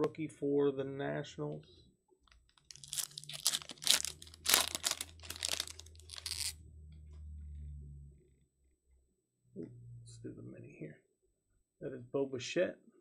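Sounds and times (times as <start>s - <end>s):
foil wrapper tearing and crinkling: 2.6s - 6.6s.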